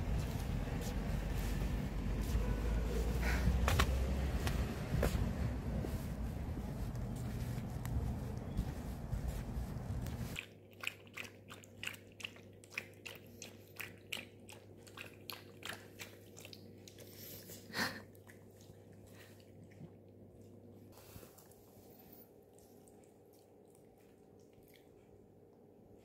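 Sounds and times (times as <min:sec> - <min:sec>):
faint steady hum: 0:00.0 - 0:10.4
low rumble: 0:00.0 - 0:10.4.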